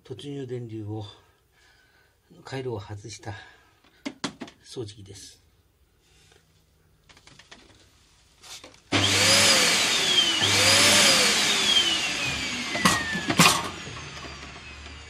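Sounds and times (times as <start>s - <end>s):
vacuum cleaner motor whine: 8.9s - 15.0s.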